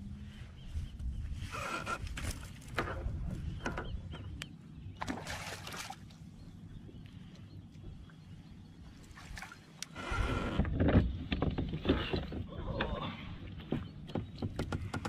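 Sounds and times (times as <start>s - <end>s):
low steady rumble: 0.0s - 11.3s
fish thrashing and splashing: 5.0s - 6.2s.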